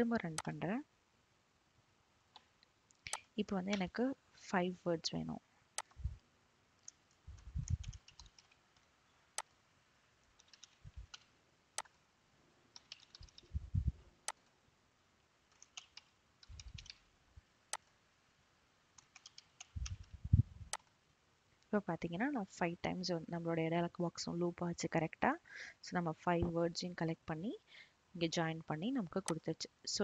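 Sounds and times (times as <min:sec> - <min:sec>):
typing on computer keyboard: 0:07.6 - 0:08.9, 0:10.4 - 0:11.3, 0:12.7 - 0:13.5, 0:15.5 - 0:17.0, 0:19.0 - 0:20.1
dull low thuds: 0:19.8 - 0:20.7.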